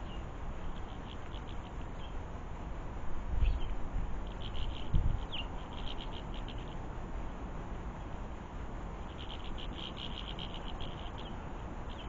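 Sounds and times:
small birds chirping: 0:00.0 - 0:02.2, 0:03.4 - 0:06.8, 0:09.0 - 0:12.0.

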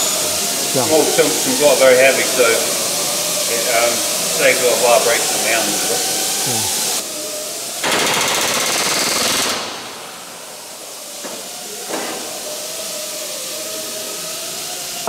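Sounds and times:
steady air hiss: 0:00.0 - 0:15.0
pneumatic rivet gun hammering: 0:07.8 - 0:09.9, 0:11.2 - 0:12.3.

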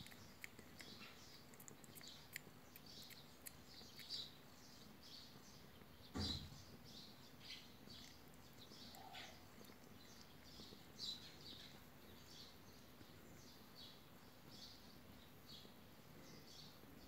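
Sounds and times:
kittens squeaking and suckling: 0:00.0 - 0:16.2.

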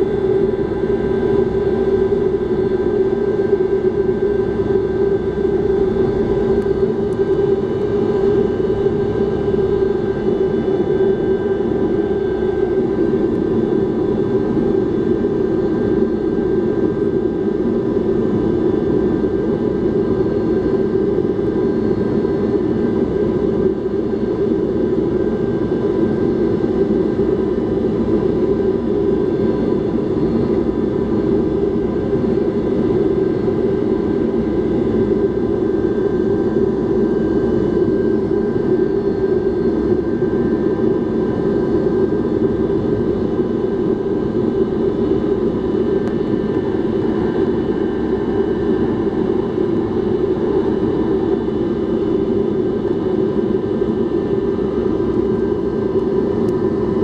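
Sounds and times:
aircraft cabin rumble: 0:03.8 - 0:15.1.

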